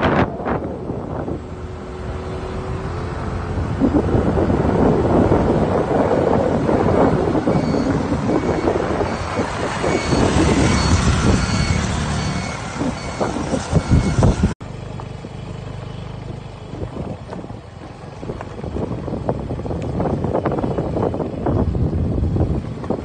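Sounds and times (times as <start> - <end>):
wind buffeting the microphone: 0.0 - 14.6, 16.3 - 23.0
moving vehicle running noise: 0.0 - 23.0
faint high beep: 7.1 - 14.3.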